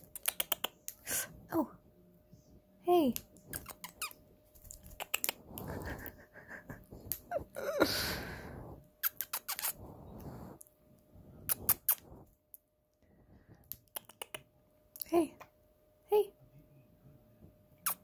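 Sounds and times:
pet bird claws clicking: 0:00.0 - 0:01.0.

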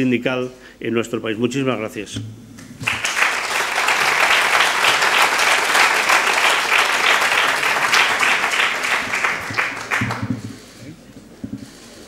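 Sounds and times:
audience applauding: 0:02.8 - 0:10.7.

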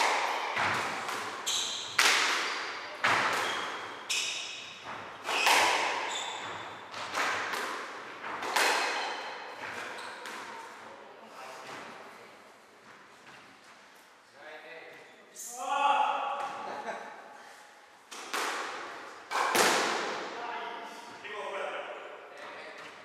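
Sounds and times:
squash ball hitting racket and walls: 0:00.0 - 0:11.0, 0:17.9 - 0:23.0
shoes squeaking on wooden floor: 0:03.4 - 0:07.0.

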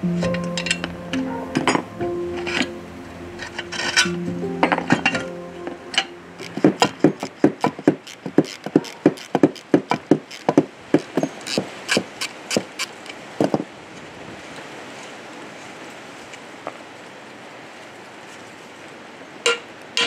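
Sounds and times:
sharp tapping knocks on wood: 0:06.4 - 0:13.6.

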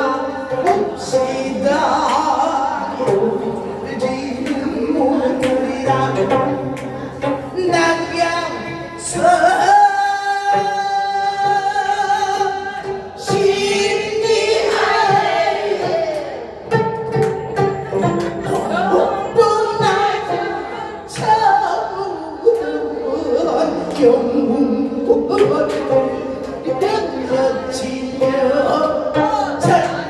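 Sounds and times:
plucked zither strings: 0:00.0 - 0:21.9
woman singing with vibrato: 0:18.0 - 0:30.0.

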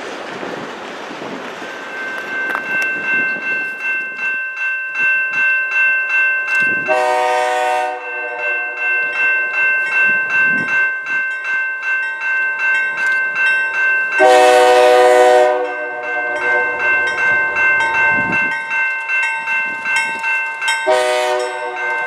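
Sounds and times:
bell ringing: 0:01.6 - 0:22.0
locomotive air horn: 0:06.9 - 0:09.2, 0:14.2 - 0:17.1, 0:20.9 - 0:22.0.

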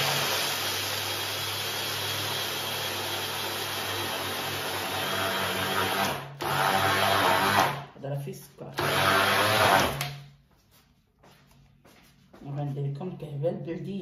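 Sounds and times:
food processor grinding nuts: 0:00.0 - 0:07.9, 0:08.8 - 0:10.2.

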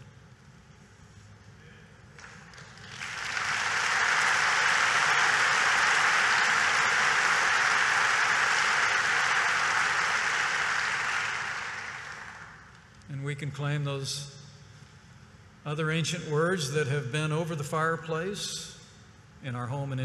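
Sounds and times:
audience applauding: 0:02.2 - 0:12.7.

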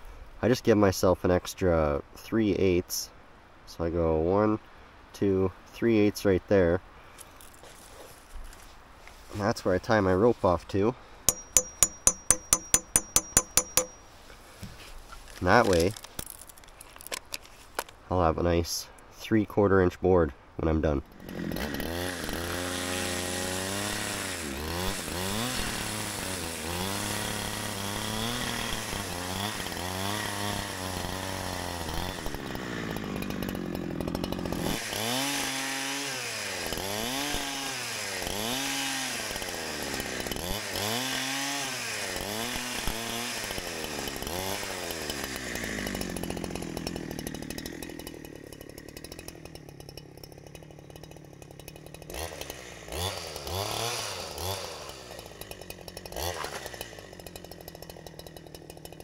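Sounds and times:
chainsaw cutting through log: 0:11.3 - 0:14.0, 0:20.9 - 0:59.0.

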